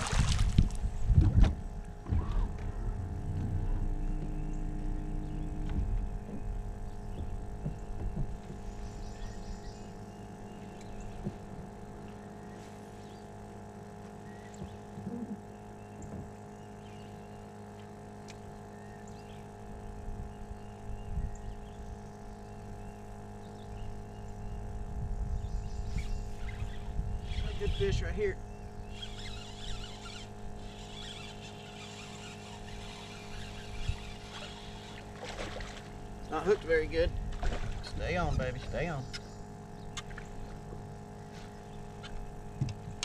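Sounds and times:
low rumble: 0:00.0 - 0:09.7
electric trolling motor hum: 0:00.0 - 0:43.0.

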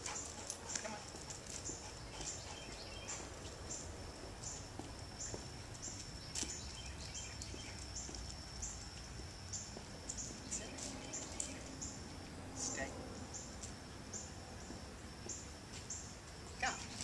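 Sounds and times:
faint footstep scuffs: 0:04.2 - 0:11.8, 0:14.6 - 0:16.0.

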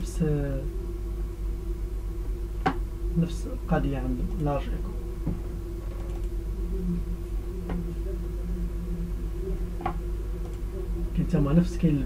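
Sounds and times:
low electrical hum: 0:00.0 - 0:12.0
faint clicks: 0:05.8 - 0:06.4.

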